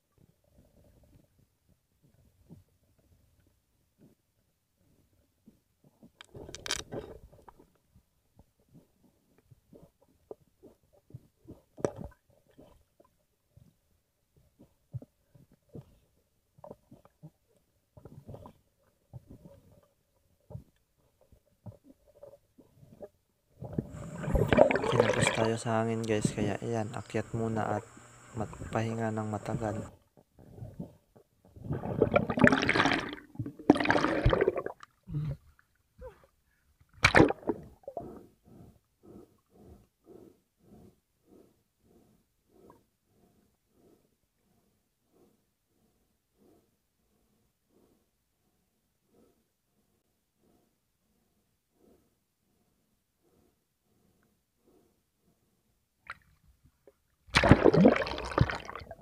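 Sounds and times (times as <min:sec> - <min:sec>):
water splashing and gurgling: 0:21.6 - 0:26.5, 0:27.9 - 0:35.0, 0:36.9 - 0:38.1, 0:57.3 - 0:59.0
sharp splash: 0:37.0 - 0:37.6, 0:57.3 - 0:58.8.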